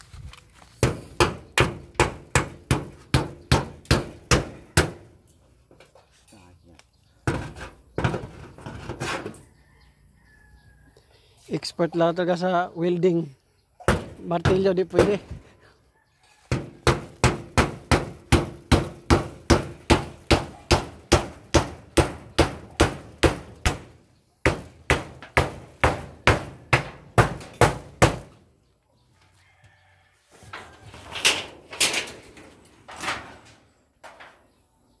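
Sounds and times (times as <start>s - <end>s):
hammer on metal sheeting: 0.8s - 5.1s, 16.5s - 28.3s
chickens calling: 6.4s - 17.3s.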